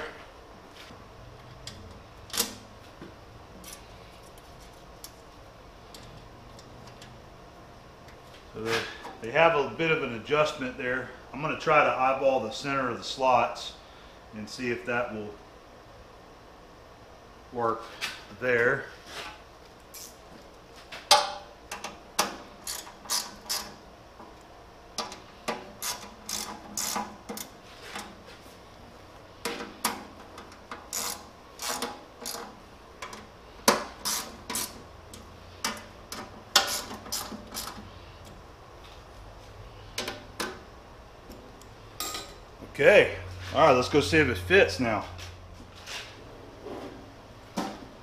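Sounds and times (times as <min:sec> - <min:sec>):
wrench clicking on metal: 0:22.6 - 0:23.7, 0:25.8 - 0:27.5, 0:30.7 - 0:33.2.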